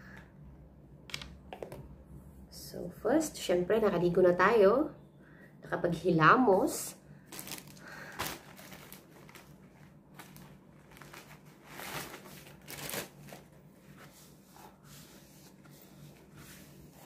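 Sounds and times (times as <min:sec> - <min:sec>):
paper tissue rustling and crinkling: 0:07.2 - 0:17.0.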